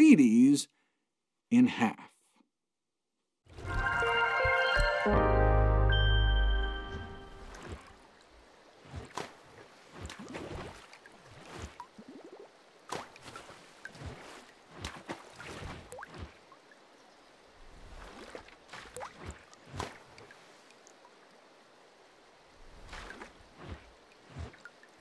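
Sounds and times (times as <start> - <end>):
water drips and splashes: 7.3 - 25.0.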